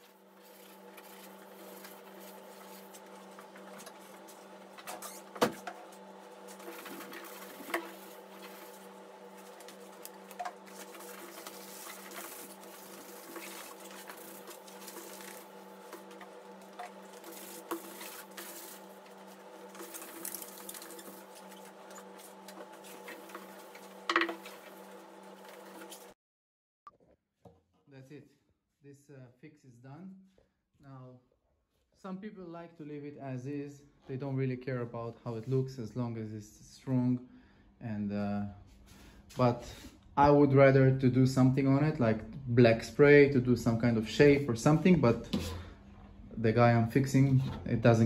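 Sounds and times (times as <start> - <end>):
wet sandpaper rubbing: 0.0 - 3.6, 6.6 - 26.2
steady machine hum: 0.0 - 26.2.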